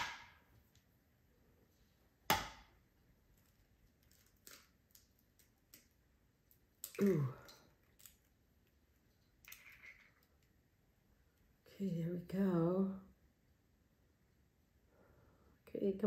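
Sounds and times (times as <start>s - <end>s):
egg cracking: 2.3s - 11.5s
eggshell clicks and scrapes: 9.2s - 10.6s.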